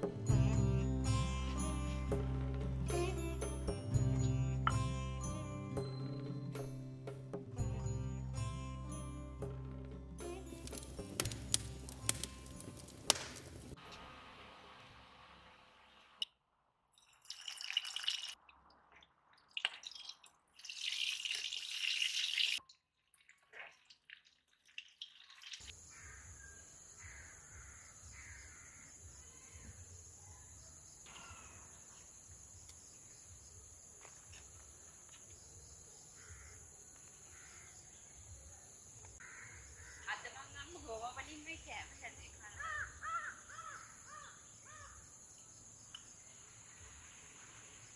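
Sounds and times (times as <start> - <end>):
food sizzling in hot oil: 19.9 - 22.6.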